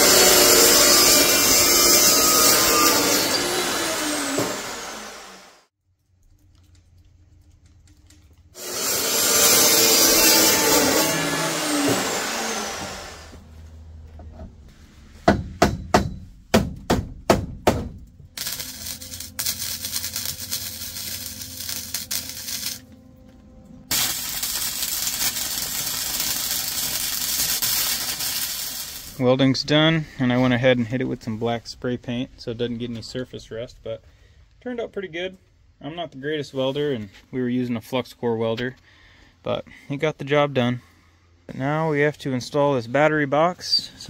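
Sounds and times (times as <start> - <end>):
power tool cutting iron: 0.0 - 5.7, 8.6 - 13.4, 18.4 - 22.9, 23.9 - 29.2
welder crackling: 6.0 - 13.4, 17.6 - 22.9, 23.9 - 29.5.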